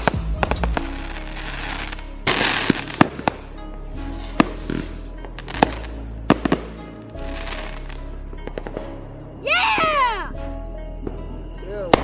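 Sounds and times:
firework hissing burst: 0:00.0 - 0:03.3
firework bangs and pops: 0:00.0 - 0:03.6, 0:04.2 - 0:09.0.

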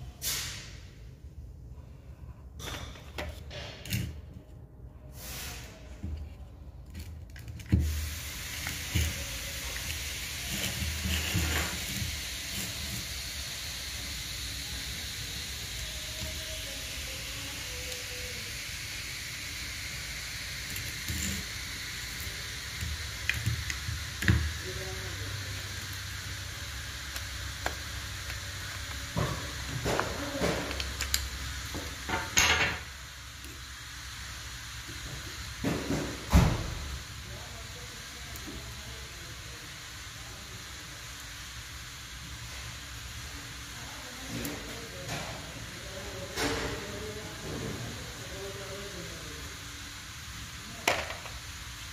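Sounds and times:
steady hiss: 0:00.0 - 0:01.5, 0:05.0 - 0:06.3, 0:07.0 - 0:51.9.

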